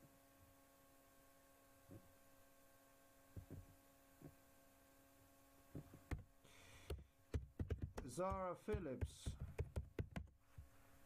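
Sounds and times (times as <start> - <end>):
low electrical hum: 0.0 - 11.0
soft dull thumps: 3.4 - 4.4.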